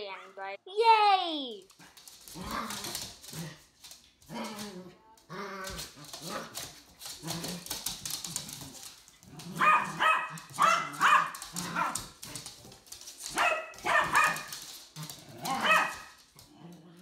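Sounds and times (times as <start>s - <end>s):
small dogs barking and yipping: 8.1s - 12.5s, 13.2s - 16.5s.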